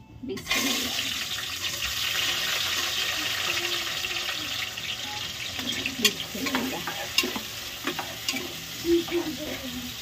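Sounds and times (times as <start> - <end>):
onions sizzling in hot oil: 0.4 - 10.0
spoon clinking against pot: 5.6 - 8.6
spoon scraping metal pot: 5.6 - 9.6.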